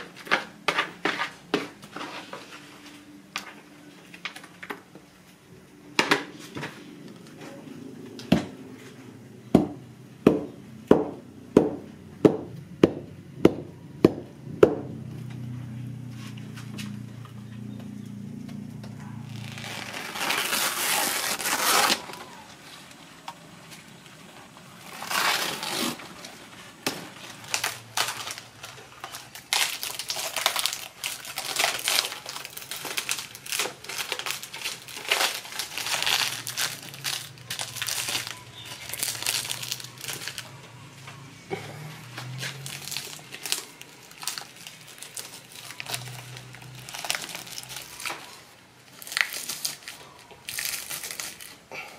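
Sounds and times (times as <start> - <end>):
leaves crinkling and rustling: 19.2 - 41.0, 42.0 - 51.6.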